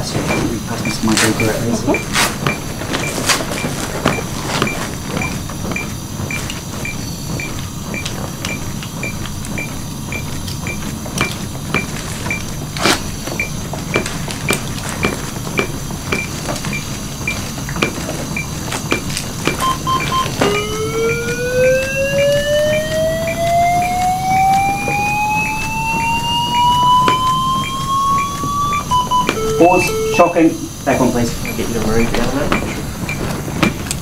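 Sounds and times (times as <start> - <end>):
metronome beeping: 0.3 - 2.6, 19.6 - 33.2.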